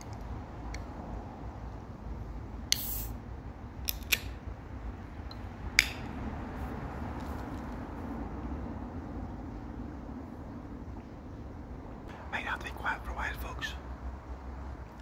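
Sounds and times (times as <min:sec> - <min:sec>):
can tab clicks: 0:02.7 - 0:03.1, 0:03.9 - 0:04.3, 0:05.3 - 0:06.1
drink can cracking open with hiss: 0:02.7 - 0:03.1.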